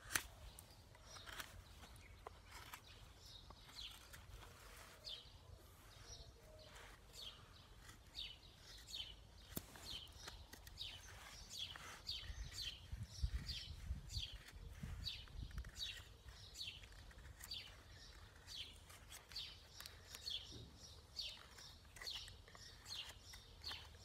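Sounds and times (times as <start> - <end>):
bird chirping: 0.0 - 24.0
knife carving wooden stick: 0.0 - 24.0.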